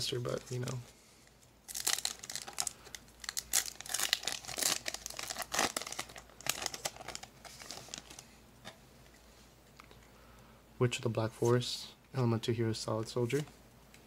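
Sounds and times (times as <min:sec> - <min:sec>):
foil wrapper tearing and crinkling: 0:01.7 - 0:08.2.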